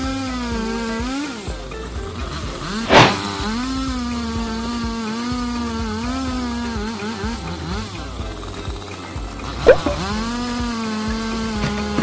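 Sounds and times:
chainsaw cutting logs: 0:00.0 - 0:12.0
loud sharp knock: 0:02.9 - 0:03.4.

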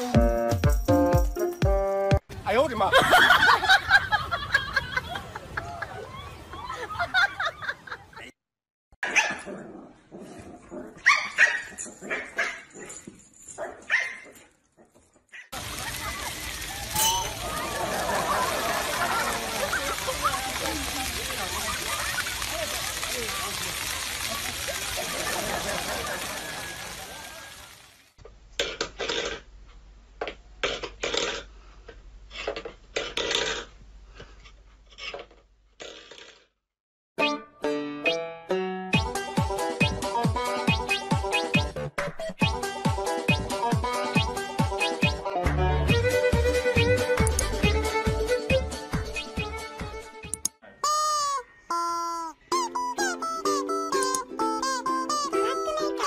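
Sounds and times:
dog barking: 0:09.0 - 0:09.5, 0:11.0 - 0:12.9, 0:13.6 - 0:14.4
metal bowl scraping on wooden floor: 0:32.3 - 0:33.7, 0:34.4 - 0:36.4.

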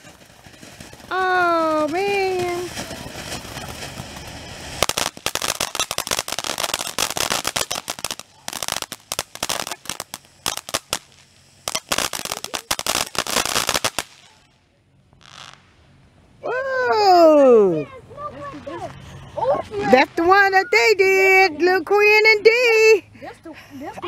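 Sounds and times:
firework crackling pops: 0:00.0 - 0:14.5, 0:15.1 - 0:15.9
firework hissing: 0:00.0 - 0:16.0.

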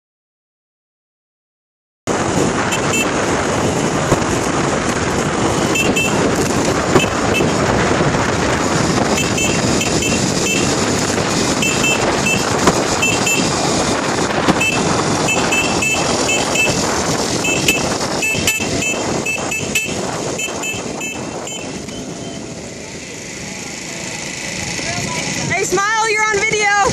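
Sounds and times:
wind noise: 0:02.1 - 0:23.4, 0:24.2 - 0:26.9
moped engine: 0:02.1 - 0:26.9
small horn beeping: 0:02.7 - 0:04.0, 0:05.4 - 0:07.7, 0:09.1 - 0:10.8, 0:11.5 - 0:13.9, 0:14.5 - 0:22.6.

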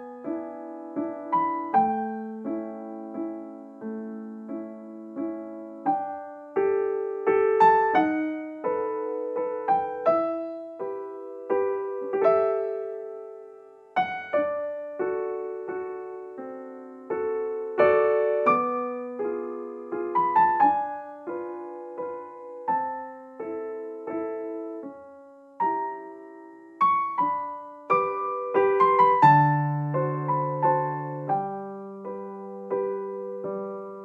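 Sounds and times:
gentle piano music: 0:00.0 - 0:34.0.

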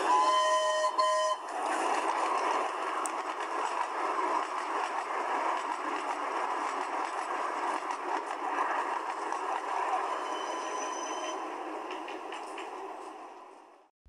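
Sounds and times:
steam locomotive whistle: 0:00.0 - 0:01.5, 0:10.0 - 0:11.4.

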